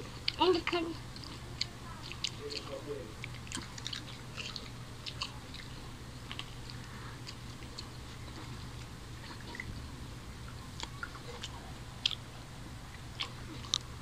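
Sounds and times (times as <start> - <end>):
chewing crisp food: 0.0 - 9.8, 10.4 - 14.0
wet mouth clicks: 0.2 - 5.7, 10.8 - 12.2.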